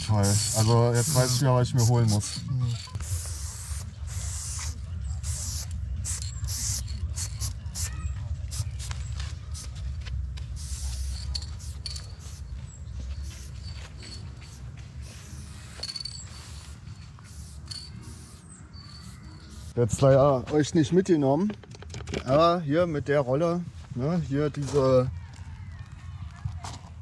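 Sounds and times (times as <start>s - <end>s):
spray paint can hissing: 0.0s - 9.8s, 10.4s - 12.5s, 13.1s - 19.8s.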